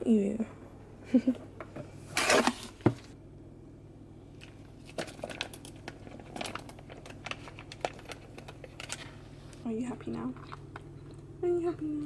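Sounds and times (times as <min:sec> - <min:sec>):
pouch crinkling and clicking: 0:04.4 - 0:09.1
foil pouch rustling: 0:04.5 - 0:09.4.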